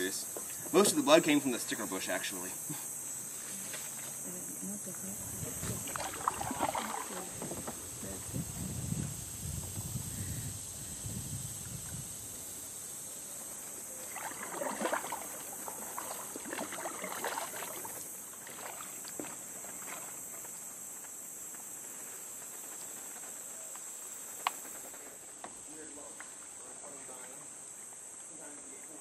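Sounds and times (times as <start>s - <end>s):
high-pitched insect chorus: 0.0s - 29.0s
paddle splashing in water: 5.4s - 8.2s, 13.6s - 20.5s.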